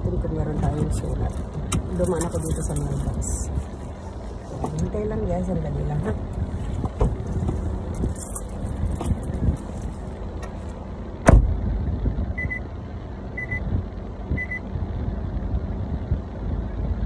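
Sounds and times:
car engine idling: 0:00.0 - 0:17.0
car door slamming: 0:06.8 - 0:07.7, 0:11.2 - 0:11.6
car warning chime beeping: 0:12.4 - 0:12.7, 0:13.4 - 0:13.7, 0:14.4 - 0:14.6.

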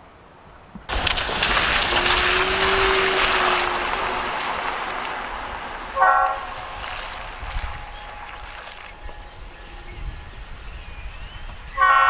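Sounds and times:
rushing noise: 0:00.9 - 0:09.3
locomotive air horn toot: 0:06.0 - 0:06.6, 0:11.7 - 0:12.0.

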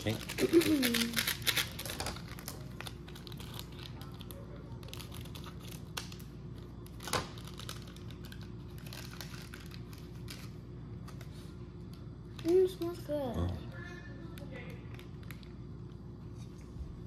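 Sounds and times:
scissors cutting plastic: 0:00.0 - 0:06.2
plastic packet crinkling: 0:00.0 - 0:11.2.

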